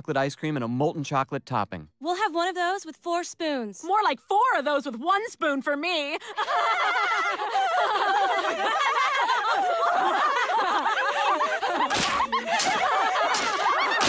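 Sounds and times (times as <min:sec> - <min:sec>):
women cackling with laughter: 0:06.2 - 0:14.0.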